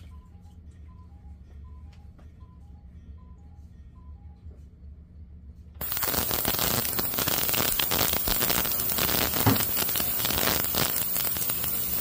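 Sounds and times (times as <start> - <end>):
ultrasonic cleaner crackling hiss: 5.8 - 12.0.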